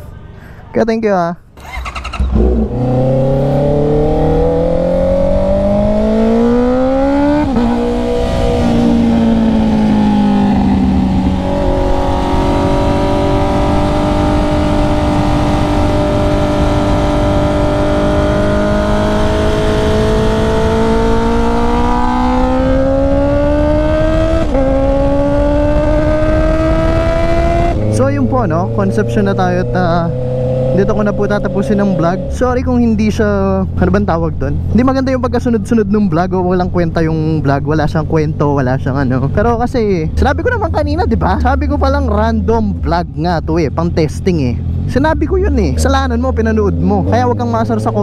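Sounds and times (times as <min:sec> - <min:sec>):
motorcycle engine revving: 0:01.6 - 0:48.0
wind rush: 0:01.7 - 0:33.4.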